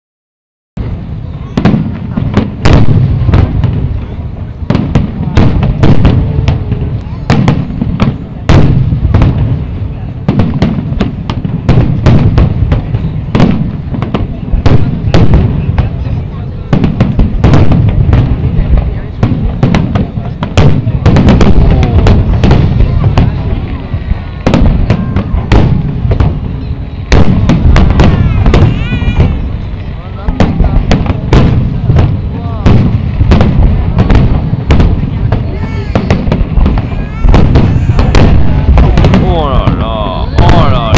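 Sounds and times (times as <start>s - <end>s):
fireworks booming: 0.8s - 40.9s
fireworks shells bursting: 24.4s - 32.1s, 32.7s - 40.9s.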